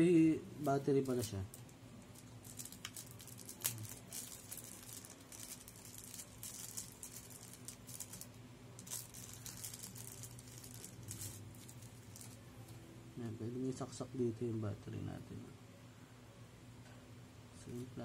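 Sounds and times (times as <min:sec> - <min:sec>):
faint low hum: 0:00.0 - 0:18.0
plastic wrapping crinkling: 0:00.6 - 0:12.8
plastic parts clicking and rattling: 0:01.0 - 0:12.4.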